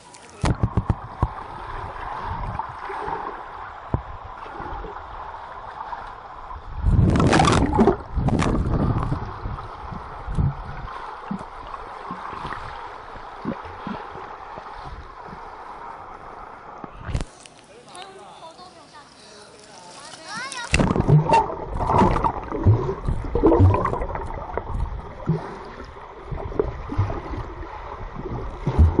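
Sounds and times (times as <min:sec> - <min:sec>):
muffled underwater gurgling: 0:06.7 - 0:15.5, 0:20.7 - 0:29.0.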